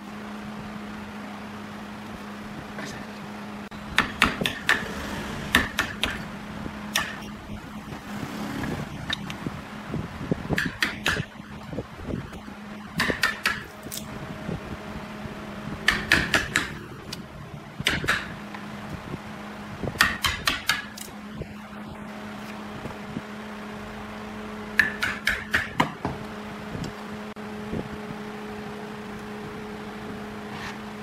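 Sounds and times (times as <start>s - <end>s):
steady low hum: 0.0s - 31.0s
mallet striking chisel: 4.0s - 4.9s, 5.5s - 6.2s, 6.9s - 7.3s, 10.6s - 11.3s, 13.0s - 14.0s, 15.8s - 16.8s, 17.8s - 18.3s, 20.0s - 21.1s, 24.8s - 26.1s.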